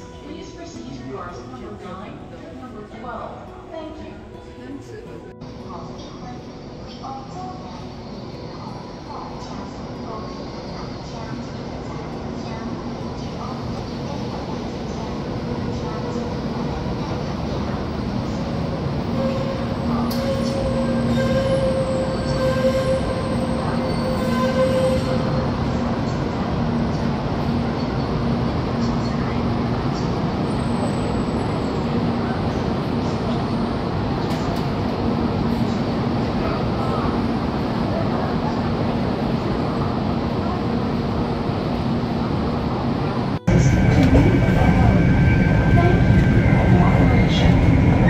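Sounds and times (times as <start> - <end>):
train rumbling: 0.0 - 48.0
train whine: 13.2 - 48.0.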